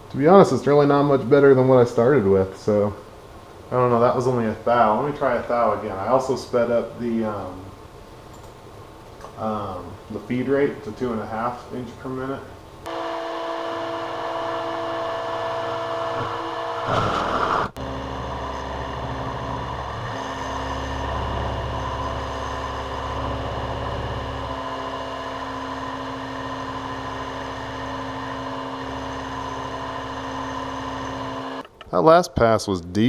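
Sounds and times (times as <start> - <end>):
milling machine running: 12.9 - 31.6
rough cutting burst: 13.7 - 23.1.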